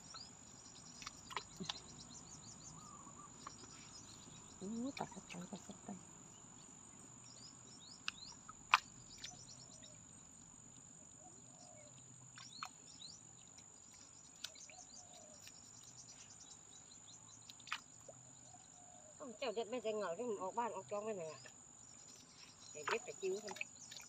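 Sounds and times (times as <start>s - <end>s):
bird chirps: 0.0s - 6.0s
insect trill: 0.0s - 24.0s.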